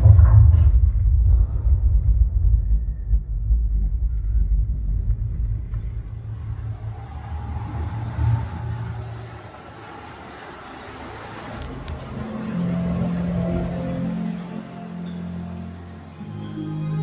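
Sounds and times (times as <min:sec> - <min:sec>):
deep bass rumble from subwoofer: 0:00.0 - 0:06.9.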